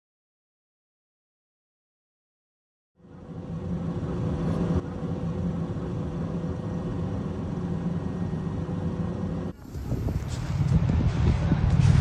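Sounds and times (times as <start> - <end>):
aircraft engine drone: 3.0 - 12.0
faint steady hum: 3.0 - 12.0.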